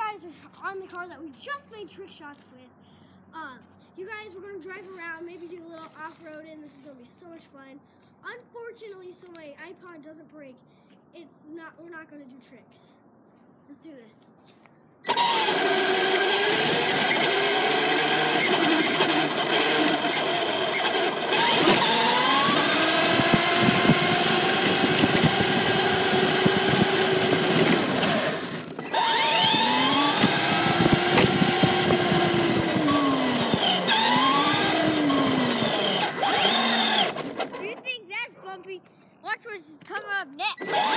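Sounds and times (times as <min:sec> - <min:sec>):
toy truck motor whining: 0:15.0 - 0:37.8, 0:40.5 - 0:40.9.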